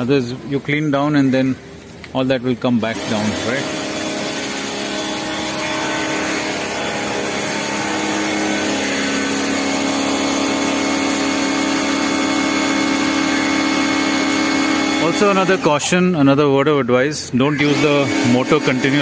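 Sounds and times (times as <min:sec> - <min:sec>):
water jet spraying: 0:02.8 - 0:16.1
pressure washer motor hum: 0:02.8 - 0:16.3, 0:17.5 - 0:19.0.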